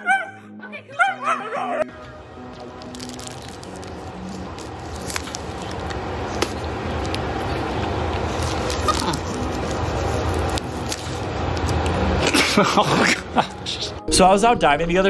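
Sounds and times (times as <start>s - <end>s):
plastic bag crinkling: 2.6s - 11.2s.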